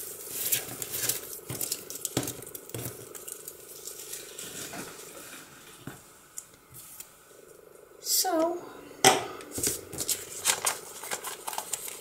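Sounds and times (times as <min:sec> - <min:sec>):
paper strips rustling: 0:00.0 - 0:02.2, 0:09.5 - 0:12.0.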